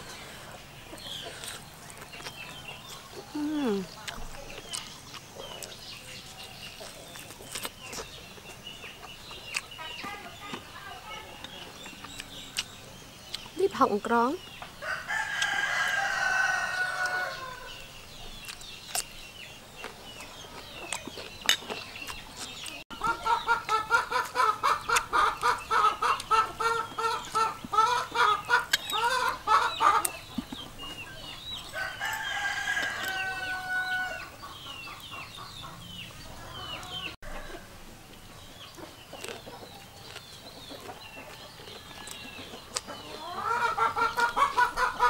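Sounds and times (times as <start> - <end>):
chicken clucking: 0.0 - 13.5, 19.8 - 37.7, 38.3 - 45.0
rooster crowing: 14.8 - 17.8, 31.7 - 34.3.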